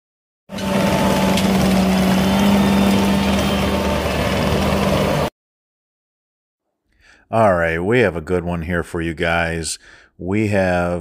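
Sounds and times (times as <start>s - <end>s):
mini skid steer engine humming: 0.5s - 5.3s.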